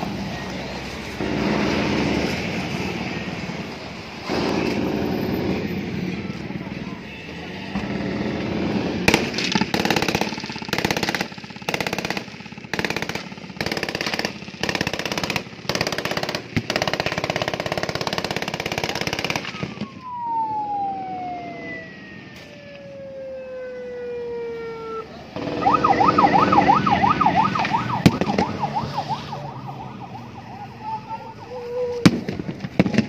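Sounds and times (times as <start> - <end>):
siren tone sliding down: 19.8 - 33.0.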